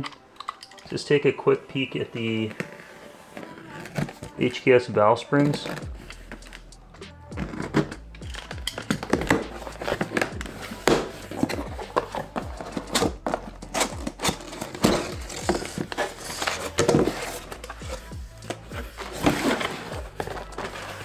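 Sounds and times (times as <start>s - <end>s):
background music: 0.0s - 21.0s
cardboard flaps scraping and rustling: 2.2s - 4.5s, 8.9s - 21.0s
packing tape being slit: 5.4s - 6.8s, 7.4s - 21.0s.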